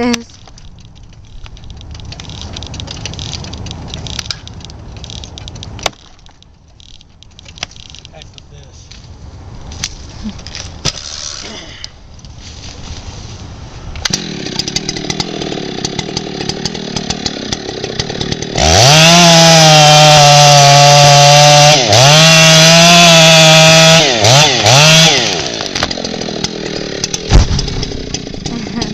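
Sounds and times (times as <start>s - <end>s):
chainsaw idling and revving: 10.9s - 11.6s, 14.0s - 28.9s.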